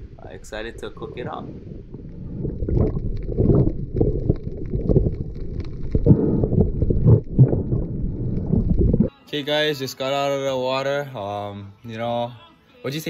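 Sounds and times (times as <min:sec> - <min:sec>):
muffled underwater water sloshing: 0:00.9 - 0:09.1.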